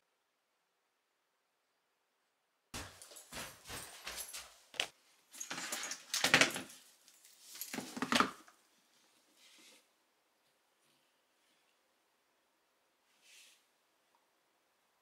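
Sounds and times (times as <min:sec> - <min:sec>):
dog harness rustling and clinking: 0:02.8 - 0:08.5.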